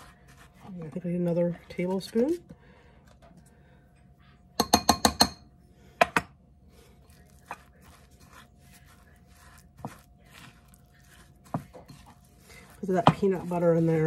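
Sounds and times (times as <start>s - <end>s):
spatula stirring and scraping dough: 0.0s - 2.6s, 6.6s - 14.0s
metal spoon tapping glass bowl: 4.6s - 5.4s.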